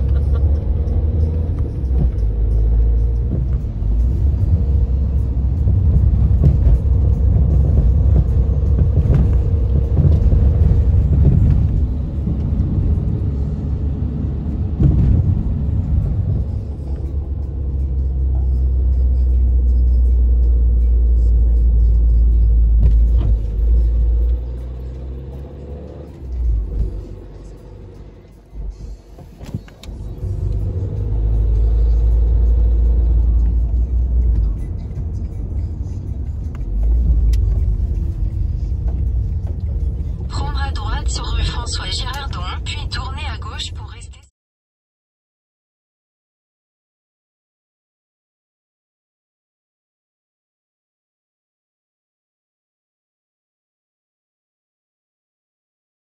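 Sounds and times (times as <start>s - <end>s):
car engine rumble: 0.0s - 44.2s
tyres on the road: 0.0s - 44.3s.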